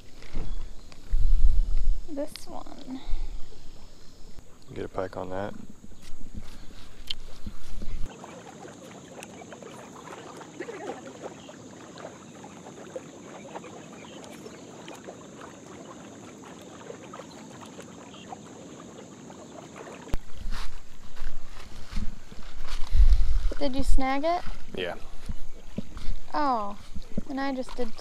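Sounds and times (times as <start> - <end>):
wind rumble on microphone: 0.0 - 8.1, 20.2 - 28.0
river water lapping on rocks: 3.8 - 28.0.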